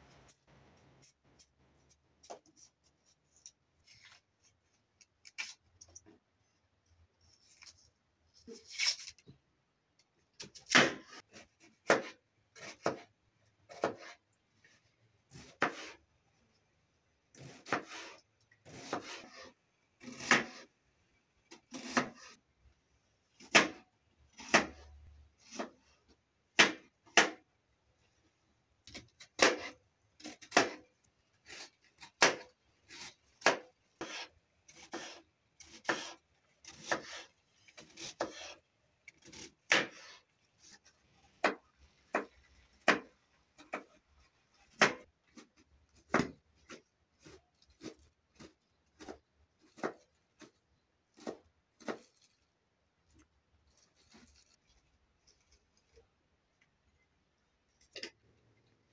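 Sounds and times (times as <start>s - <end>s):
knife chopping on cutting board: 11.8s - 13.1s, 13.7s - 14.2s, 15.4s - 16.0s, 17.4s - 19.3s, 20.0s - 20.6s, 23.4s - 23.8s, 28.9s - 30.8s, 33.4s - 37.2s, 39.2s - 40.0s, 44.8s - 45.5s, 46.1s - 50.5s, 51.2s - 52.1s.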